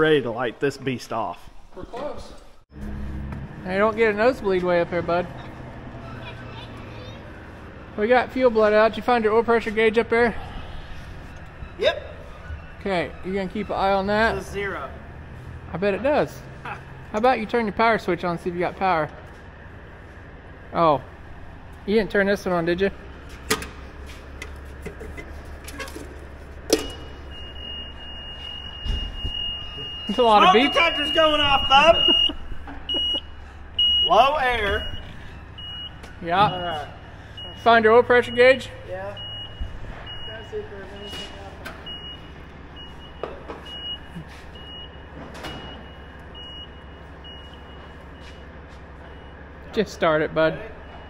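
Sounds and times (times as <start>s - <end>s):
high warning beep: 26.8s - 49.4s.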